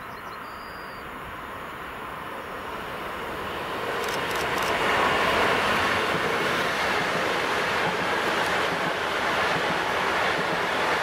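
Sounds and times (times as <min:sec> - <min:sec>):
train wheels rushing on rail: 0:01.0 - 0:11.0
sharp clicks: 0:04.0 - 0:04.8.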